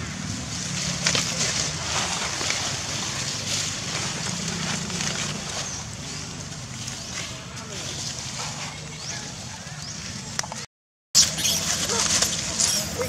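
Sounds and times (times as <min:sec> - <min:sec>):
dry leaves rustling and crackling: 0:00.0 - 0:09.2.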